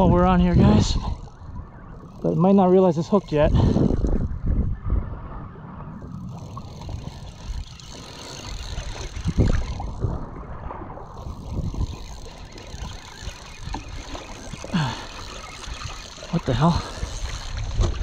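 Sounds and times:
water slapping against kayak hull: 11.5 - 18.0.

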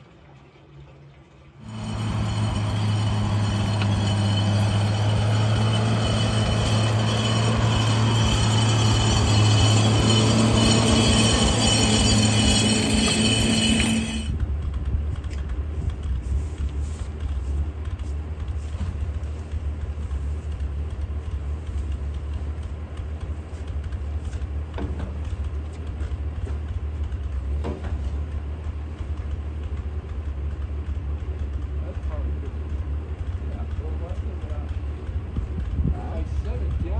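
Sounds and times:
tracked vehicle engine and clattering tracks: 1.4 - 36.9
low engine idle: 14.2 - 36.9.

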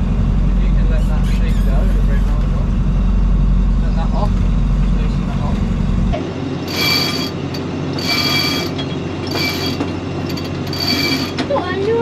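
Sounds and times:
steady low hum: 0.0 - 11.5
winch ratcheting and whirring: 6.6 - 12.0.

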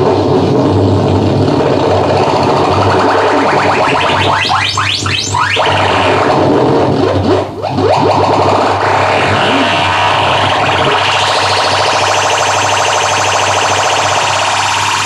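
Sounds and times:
distorted electronic synth noise: 0.0 - 15.0
rising electronic chirps: 2.2 - 6.5, 7.7 - 15.0.

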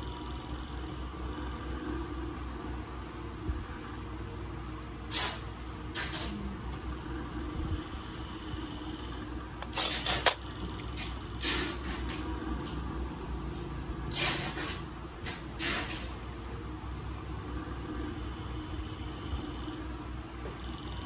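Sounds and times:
nail nippers clicking: 9.6 - 11.0
nail nippers snipping: 9.6 - 11.0.

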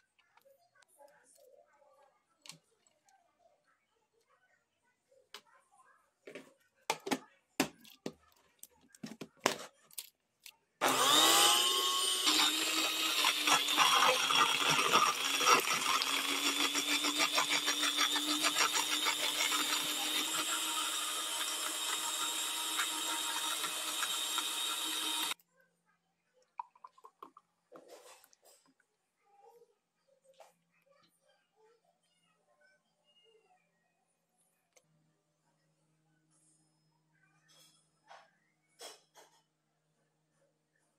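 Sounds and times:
blender motor running: 10.8 - 25.4.

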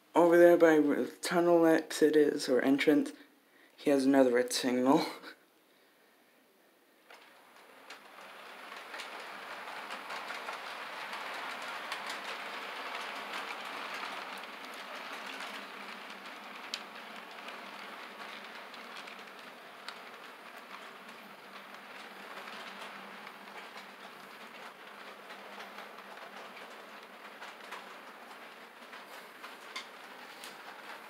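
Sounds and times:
model train wheels clattering: 7.0 - 31.0.

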